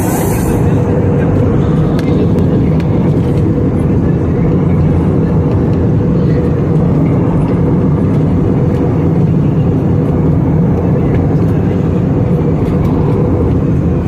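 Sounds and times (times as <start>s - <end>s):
air rushing past fuselage: 0.0s - 1.8s
jet engines rumbling: 0.0s - 14.0s.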